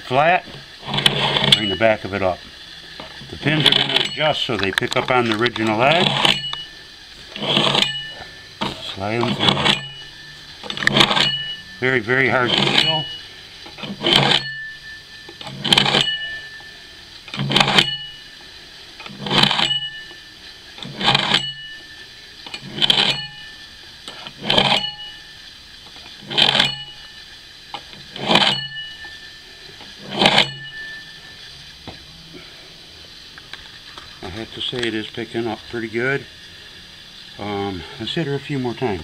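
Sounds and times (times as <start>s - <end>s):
axe scraping on steel rods: 0.1s - 31.4s
axe head ringing: 0.9s - 2.3s, 3.4s - 31.6s.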